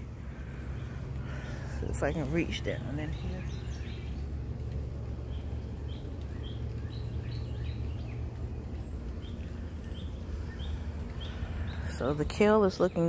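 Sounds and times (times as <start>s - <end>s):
steady low rumble: 0.0s - 13.0s
small bird chirping: 0.5s - 13.0s.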